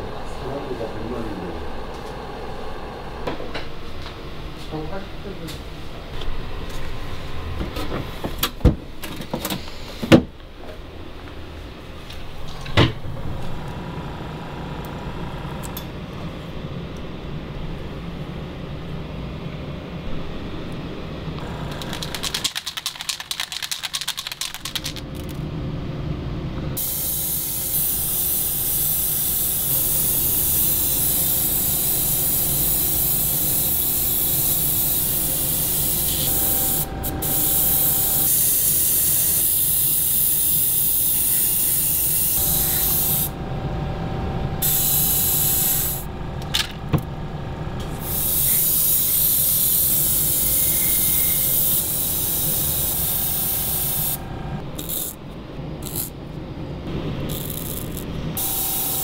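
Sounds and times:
low steady hum: 0:10.4 - 0:22.6, 0:42.4 - 0:48.2
airbrush spraying hiss: 0:26.8 - 0:43.3, 0:44.6 - 0:46.1, 0:48.1 - 0:54.2.

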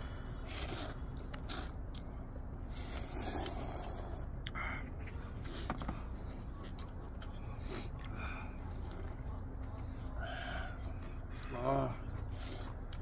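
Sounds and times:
steady low rumble: 0:00.0 - 0:13.0
people slurping noodles: 0:00.4 - 0:01.8.

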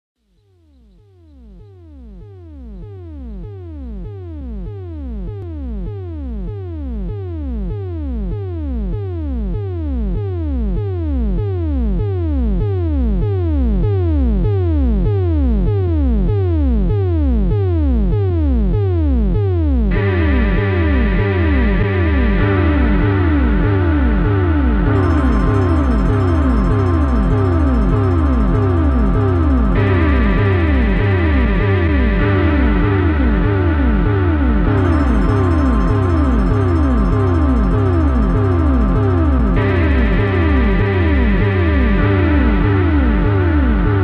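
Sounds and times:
sustained synth chords: 0:19.8 - 0:44.0.

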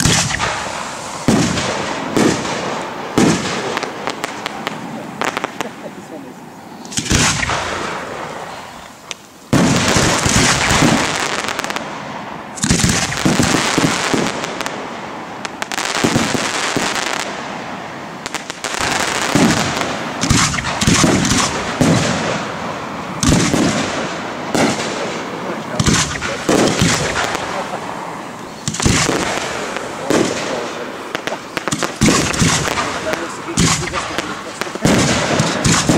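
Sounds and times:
firework crackling: 0:00.0 - 0:35.9
firework shells bursting: 0:06.8 - 0:17.4, 0:18.2 - 0:35.9.

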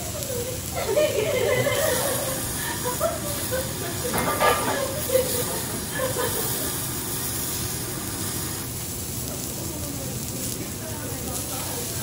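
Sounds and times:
meat sizzling on a griddle: 0:00.0 - 0:12.0
metal spatula scraping steel: 0:04.1 - 0:05.2.

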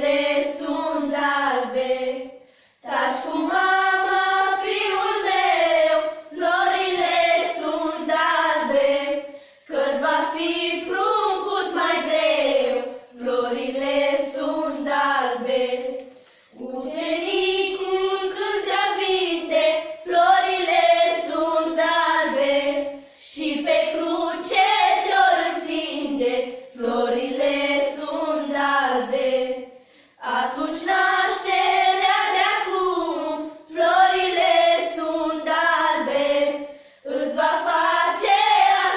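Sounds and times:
girls singing unaccompanied: 0:00.0 - 0:38.9
singers breathing: 0:02.3 - 0:02.9, 0:09.2 - 0:09.7, 0:22.9 - 0:23.2, 0:29.7 - 0:30.2, 0:36.6 - 0:37.1.

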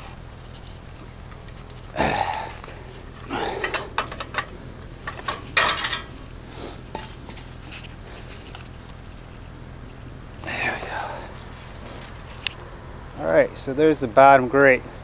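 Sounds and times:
metal grate clanking and scraping: 0:03.1 - 0:06.3, 0:06.9 - 0:07.5.

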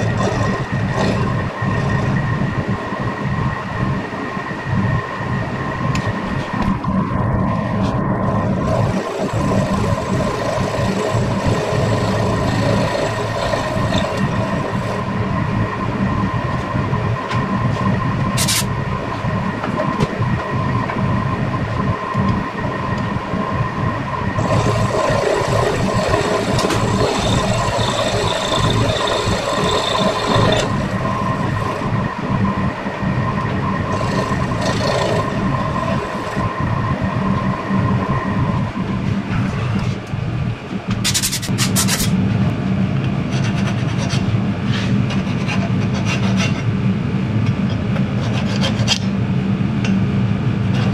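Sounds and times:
milling machine cutting metal: 0:08.3 - 0:15.1, 0:24.4 - 0:32.2, 0:33.4 - 0:37.6.

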